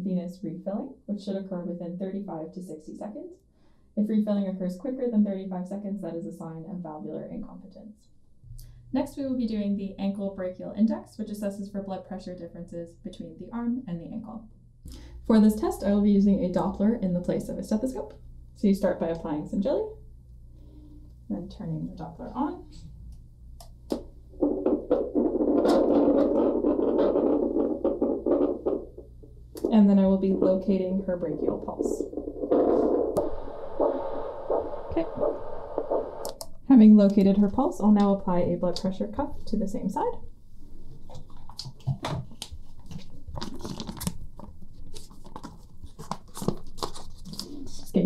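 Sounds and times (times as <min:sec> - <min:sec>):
rushing static with crackles: 0:24.3 - 0:36.5
crackling of paper and cuff: 0:41.0 - 0:48.0
velcro crackles: 0:42.3 - 0:48.0.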